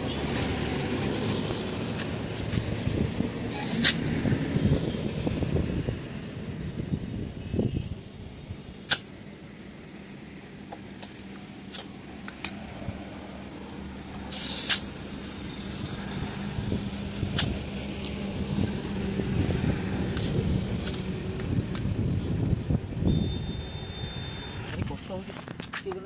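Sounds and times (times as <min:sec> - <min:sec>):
steady rush of air: 0:00.6 - 0:09.4, 0:11.0 - 0:23.0
air hissing from hose: 0:03.5 - 0:04.1, 0:06.5 - 0:09.1, 0:11.0 - 0:11.9, 0:14.3 - 0:18.8, 0:20.0 - 0:21.1.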